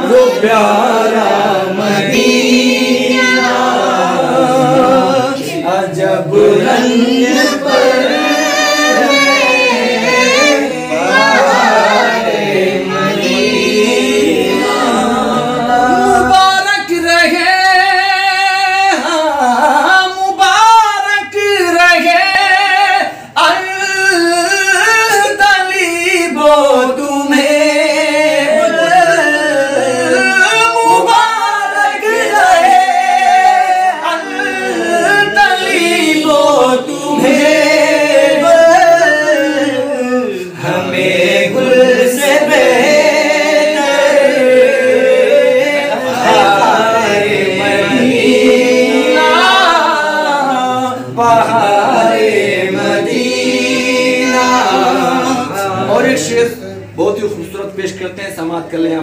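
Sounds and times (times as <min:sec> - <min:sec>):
men singing unaccompanied: 0:00.0 - 0:57.1.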